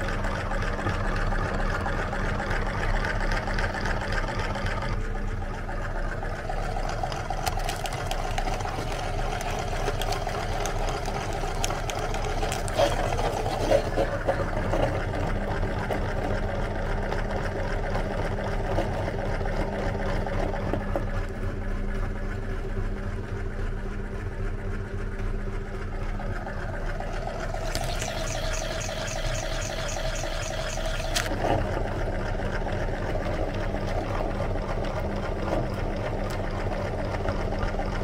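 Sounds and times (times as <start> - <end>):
meat grinder humming: 0.0 - 38.0.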